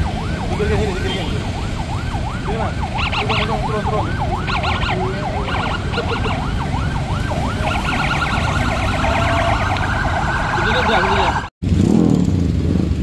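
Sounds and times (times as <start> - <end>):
high-pitched siren warble: 0.0 - 11.5
police siren yelping: 0.0 - 11.6
traffic engines rumble: 0.0 - 13.0.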